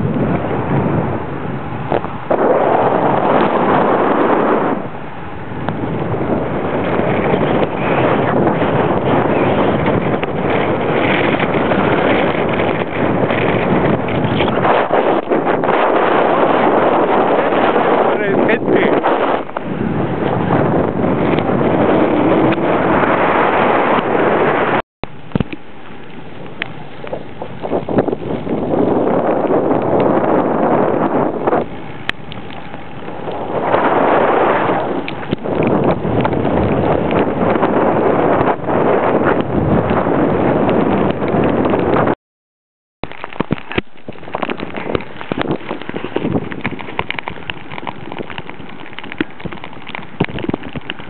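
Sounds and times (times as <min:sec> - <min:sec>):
wind rushing over microphone: 0:00.0 - 0:42.2, 0:43.0 - 0:51.0
irregular crackles and clicks: 0:25.3 - 0:27.8, 0:31.5 - 0:34.0, 0:34.7 - 0:37.6, 0:43.0 - 0:51.0.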